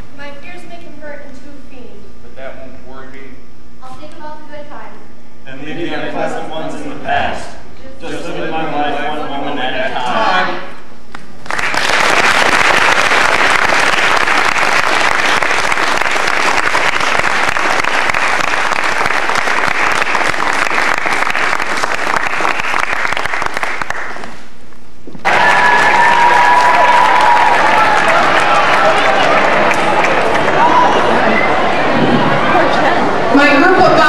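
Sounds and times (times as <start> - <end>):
audience applauding: 11.1 - 24.5, 25.2 - 33.4
high held shout: 25.2 - 34.0.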